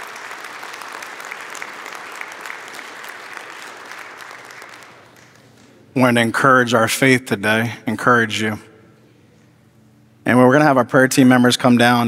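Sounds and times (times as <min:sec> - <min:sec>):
crowd applauding: 0:00.0 - 0:05.8.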